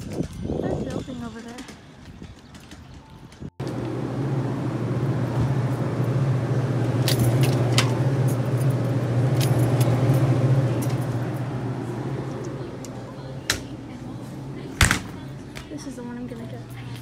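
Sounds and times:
drink cooler humming: 0:03.6 - 0:17.0.

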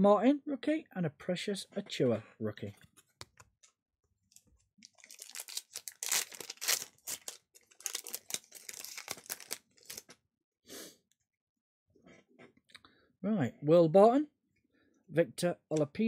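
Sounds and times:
foil wrapper tearing and crinkling: 0:04.8 - 0:10.2.

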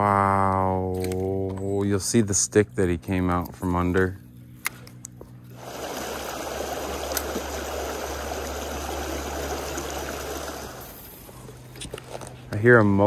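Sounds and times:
stream rushing over stones: 0:05.6 - 0:11.0.

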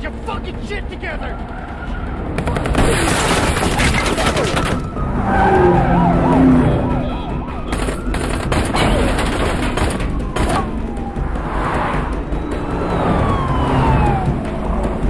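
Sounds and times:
gunshots: 0:02.4 - 0:04.8
police siren yelping: 0:04.0 - 0:11.4, 0:12.2 - 0:15.0.

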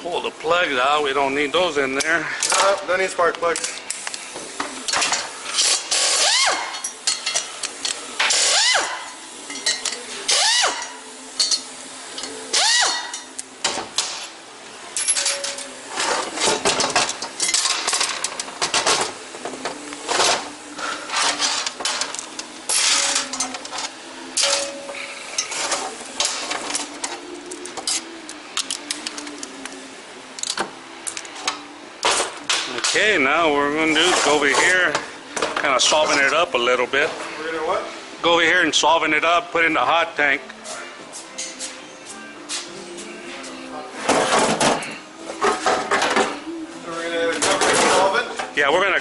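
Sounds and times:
hand tools clinking on metal: 0:09.5 - 0:13.3, 0:15.0 - 0:15.7, 0:21.1 - 0:26.9.

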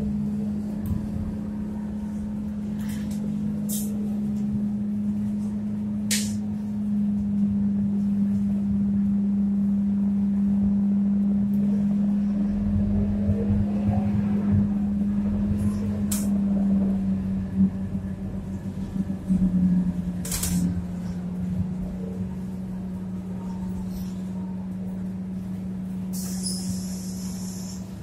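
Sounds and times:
bus engine hum: 0:00.0 - 0:28.0
low rumble: 0:00.0 - 0:28.0
short air hisses: 0:26.2 - 0:27.9.

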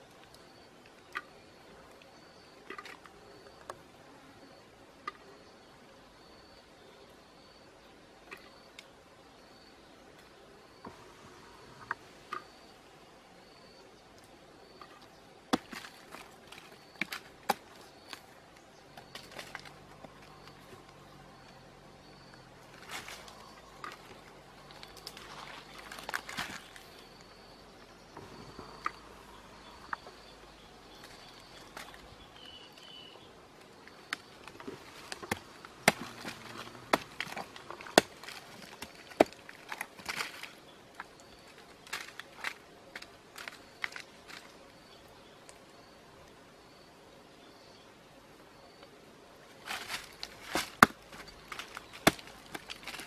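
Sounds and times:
rotten wood snapping: 0:14.8 - 0:21.6, 0:22.3 - 0:27.3, 0:29.9 - 0:33.0, 0:33.6 - 0:44.7, 0:49.6 - 0:53.0
wood cracking: 0:15.5 - 0:18.3, 0:18.9 - 0:20.9, 0:22.6 - 0:27.0, 0:33.6 - 0:44.6, 0:49.6 - 0:53.0
stone knocking on rotten log: 0:35.1 - 0:40.4, 0:50.4 - 0:53.0.

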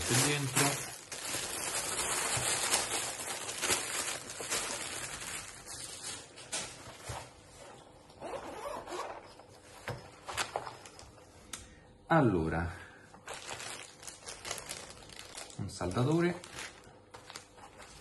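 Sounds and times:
plastic bag crinkling: 0:00.0 - 0:06.9, 0:13.2 - 0:18.0
zipper being pulled open: 0:08.2 - 0:09.4.

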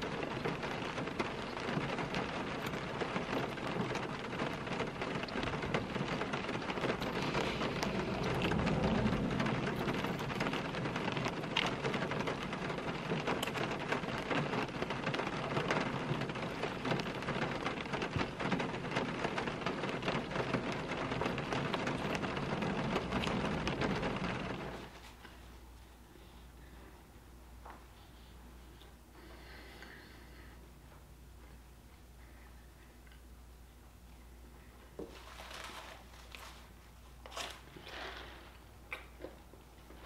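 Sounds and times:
rain on a car roof: 0:00.0 - 0:25.4.

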